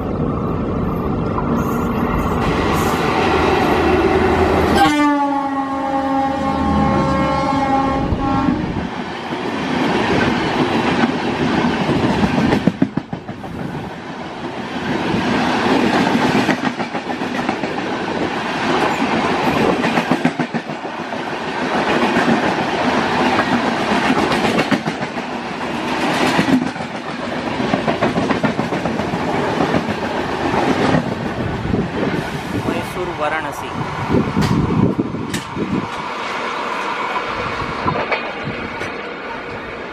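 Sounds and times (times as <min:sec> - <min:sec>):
train wheels clattering on rail joints: 0:21.8 - 0:31.2, 0:34.4 - 0:36.1, 0:37.8 - 0:39.0.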